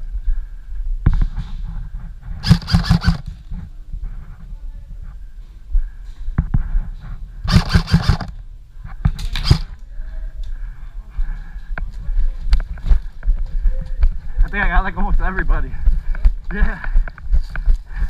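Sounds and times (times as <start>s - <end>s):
airsoft rifle bursts: 2.4s - 3.4s, 7.5s - 8.4s, 9.2s - 9.8s.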